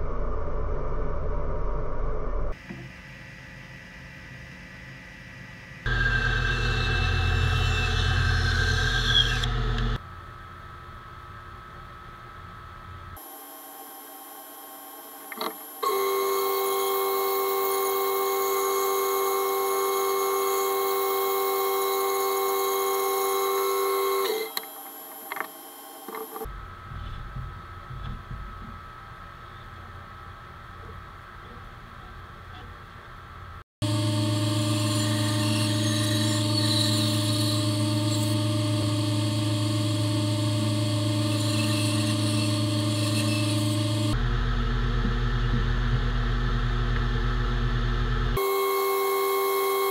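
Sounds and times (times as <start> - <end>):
machine running hum: 0.0 - 49.9
bandsaw cutting wood: 5.9 - 10.0, 33.9 - 44.2
bandsaw cutting wood whine: 5.9 - 10.0, 15.3 - 26.5, 33.8 - 49.9.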